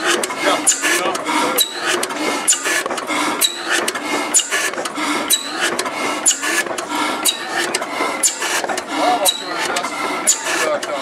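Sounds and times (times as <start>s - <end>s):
stationary gas engine clattering: 0.0s - 11.0s
high squeak: 0.7s - 2.8s, 3.4s - 3.8s, 5.3s - 7.6s, 8.2s - 10.7s.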